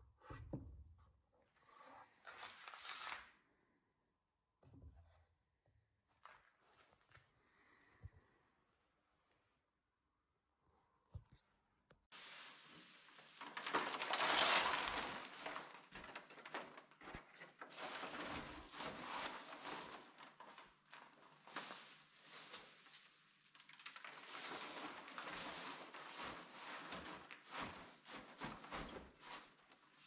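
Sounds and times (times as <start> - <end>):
wood shavings rustling and crunching: 12.1 - 30.0.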